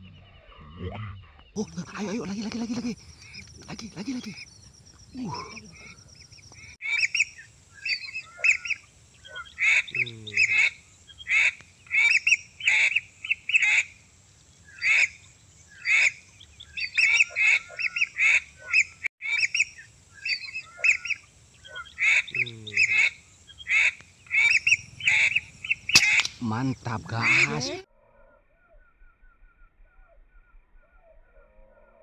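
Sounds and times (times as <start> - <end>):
duck whistling calls: 16.8 - 26.4, 27.2 - 27.8.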